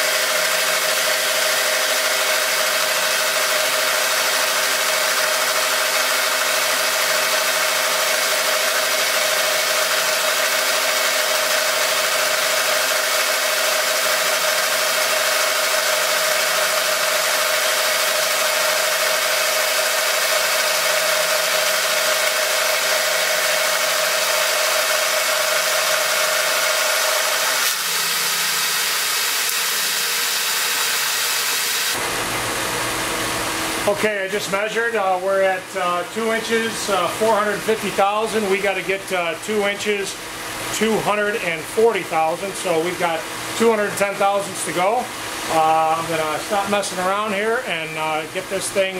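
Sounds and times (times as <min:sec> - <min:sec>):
milling machine cutting steel: 0:00.0 - 0:32.1.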